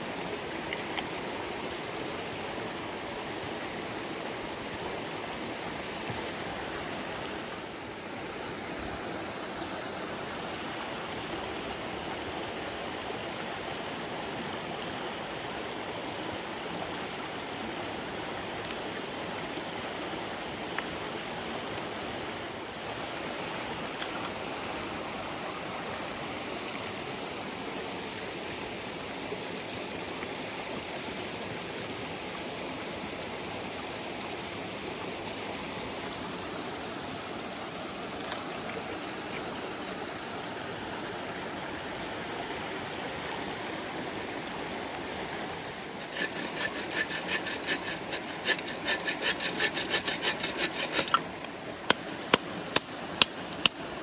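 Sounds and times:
stream running: 0.0 - 54.0
saw cutting a stick: 46.0 - 51.2.

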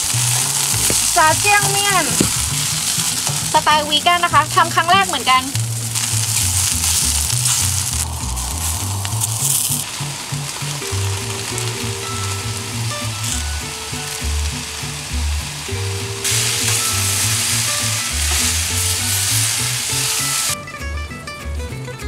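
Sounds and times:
vegetables sizzling in a frying pan: 0.0 - 20.6.

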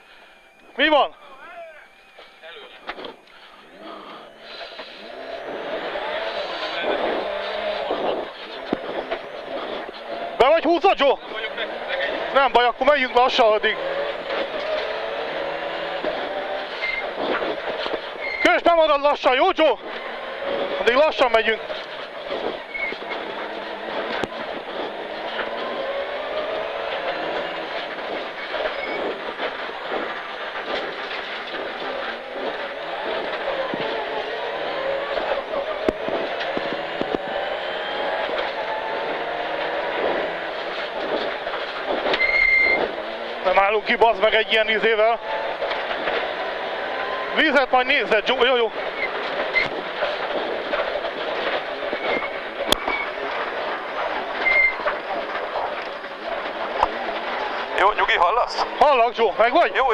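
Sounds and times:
car engine running: 0.0 - 59.9
road and drivetrain noise: 0.0 - 59.9
car body rattling: 6.3 - 59.9
brief squeaks: 16.8 - 17.2, 18.2 - 18.5, 22.6 - 23.2, 42.1 - 42.9, 51.9 - 53.2, 54.4 - 54.8.

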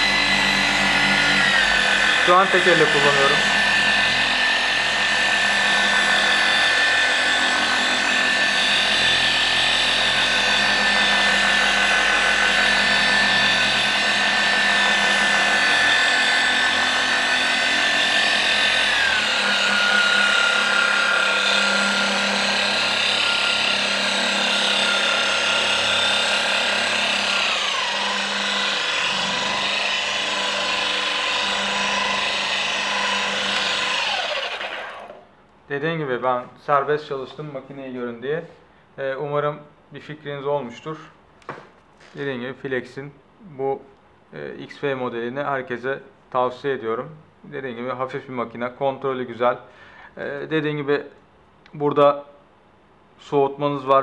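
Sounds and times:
orbital polisher motor whine: 0.0 - 35.2.

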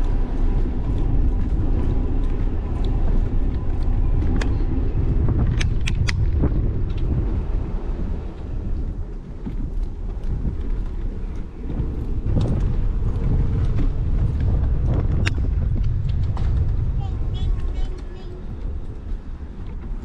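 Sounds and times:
bicycle tyres rumbling on bricks: 0.0 - 20.0
wind buffeting microphone: 0.0 - 20.0
sharp clicks: 5.5 - 6.3.

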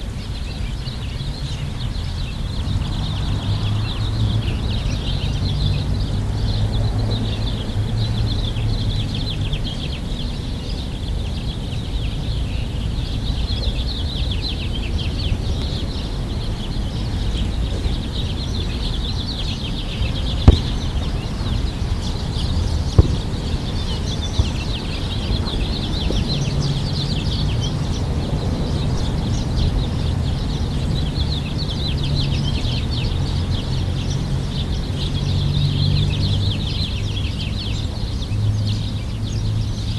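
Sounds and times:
small birds chirping: 0.0 - 39.9
sharp knocks: 20.5 - 21.2, 22.9 - 23.5.

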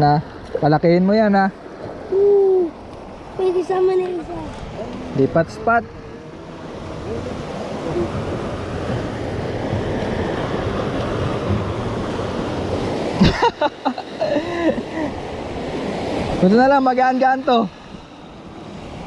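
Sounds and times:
waves breaking on rocks: 0.0 - 19.0
wind buffeting microphone: 1.8 - 13.4.

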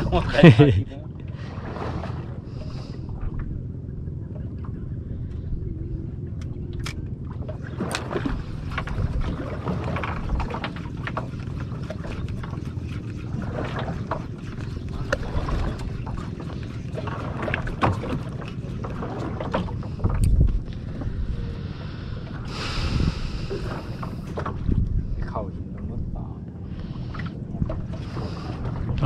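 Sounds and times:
water slapping boat hull: 0.0 - 5.5, 6.4 - 29.0
wind buffeting microphone: 3.0 - 29.0.

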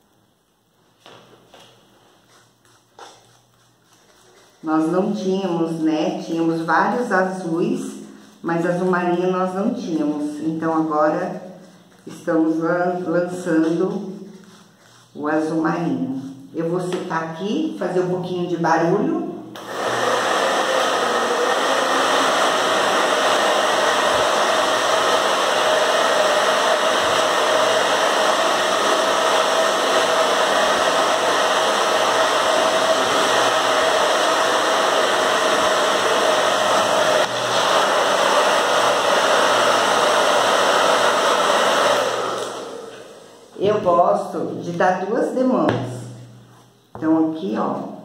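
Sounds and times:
hair dryer running: 19.5 - 44.0.

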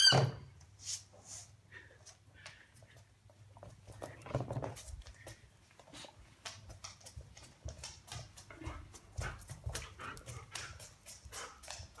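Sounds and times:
dog claws clicking on floor: 2.4 - 12.0.

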